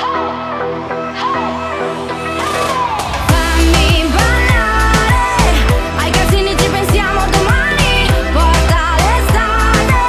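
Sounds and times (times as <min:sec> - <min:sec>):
pop song with vocals: 0:00.0 - 0:10.0
deep kick drums: 0:03.3 - 0:10.0.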